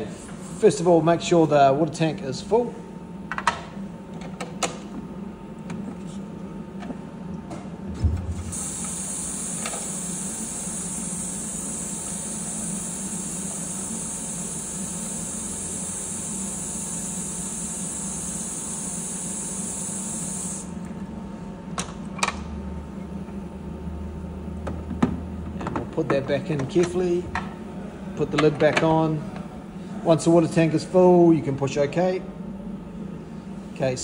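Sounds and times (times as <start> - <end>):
thump: 7.9 - 8.6.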